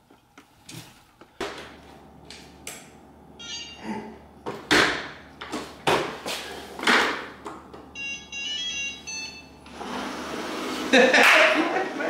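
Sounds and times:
electronic start-up jingle: 3.4s - 4.0s, 8.0s - 9.7s.

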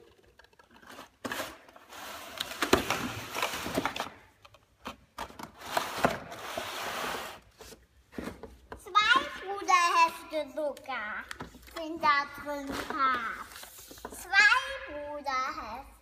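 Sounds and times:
cardboard packaging scraping: 0.6s - 4.1s, 5.6s - 7.8s.

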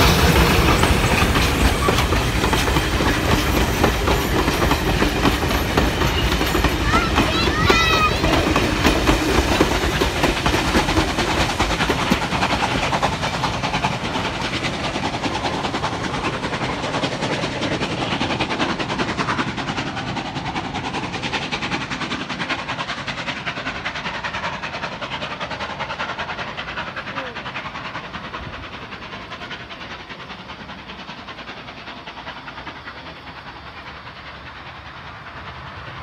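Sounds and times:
train carriages clattering on rails: 0.0s - 36.0s.

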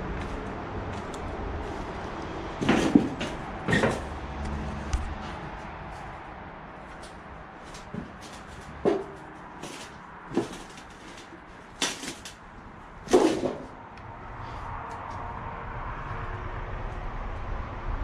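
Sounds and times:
footsteps on board floor: 2.6s - 4.2s.

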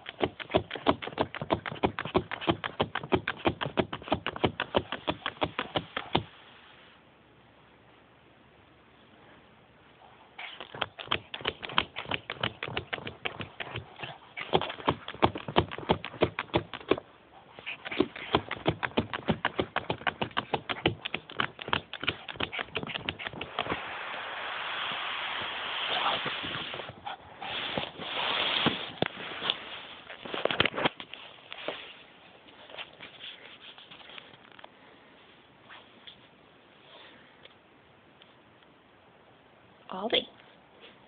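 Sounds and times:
scratchy rustling: 10.4s - 34.6s
puppy tapping plastic box: 17.9s - 23.5s.

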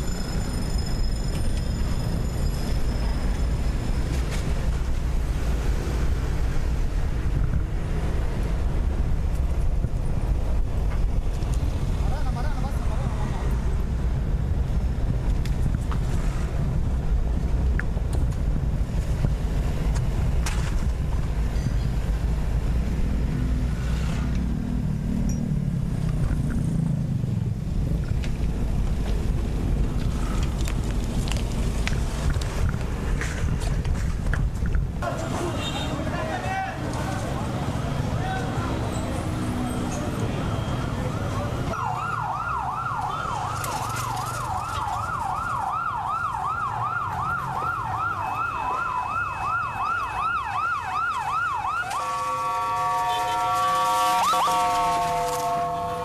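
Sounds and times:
wind rumble on microphone: 2.1s - 12.4s, 13.3s - 35.0s
emergency siren yelping: 40.3s - 56.0s.

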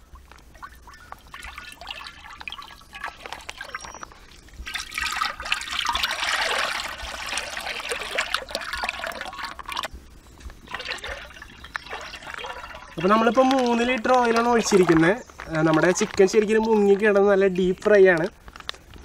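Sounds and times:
oil pouring into metal pot: 0.6s - 9.9s, 10.7s - 16.3s.

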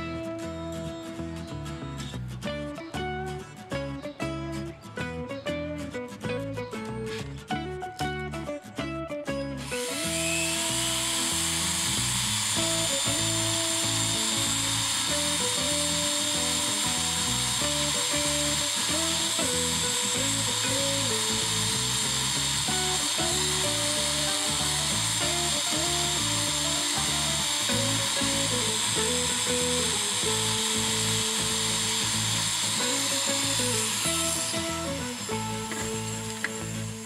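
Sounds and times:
background music: 0.0s - 37.0s
rotary tool grinding steel: 9.6s - 37.0s.

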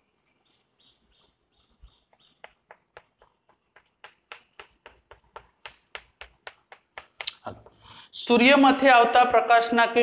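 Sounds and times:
chalk striking a chalkboard: 2.0s - 7.8s.

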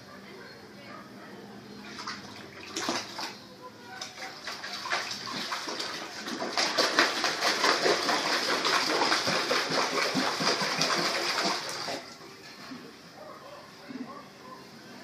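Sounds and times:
water splashing in a basin: 1.8s - 3.4s, 4.0s - 12.1s.

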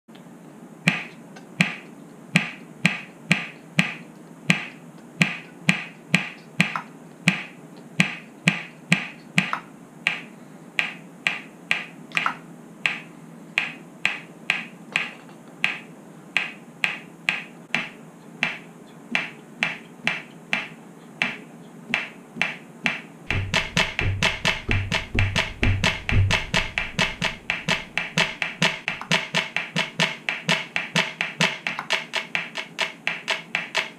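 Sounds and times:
deep bass hit: 23.3s - 28.2s
electronic cajon rhythm: 23.3s - 33.9s.

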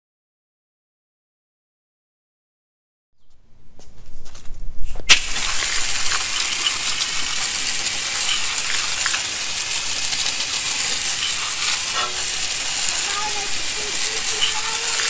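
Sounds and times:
hose nozzle spray hissing: 5.1s - 15.0s
water splattering off wheel: 5.1s - 15.0s.

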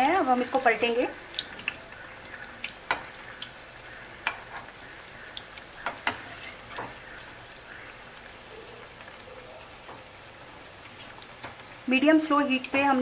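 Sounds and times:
deep-frying sizzle in oil: 0.0s - 13.0s.

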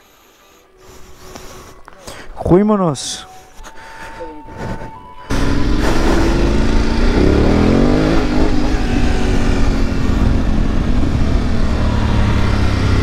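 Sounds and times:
motorcycle engine pulling away: 5.3s - 13.0s.

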